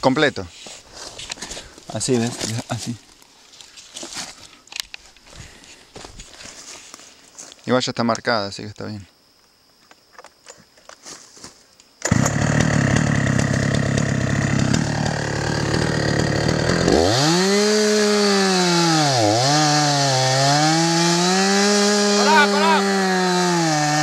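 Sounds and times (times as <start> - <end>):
chainsaw cutting tree trunk: 12.0 - 24.0
chainsaw running and revving: 12.0 - 24.0.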